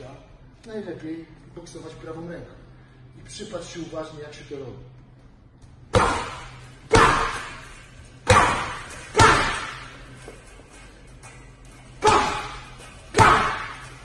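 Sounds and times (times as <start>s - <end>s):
punches thudding on heavy bag: 6.0s - 9.9s, 12.0s - 14.0s.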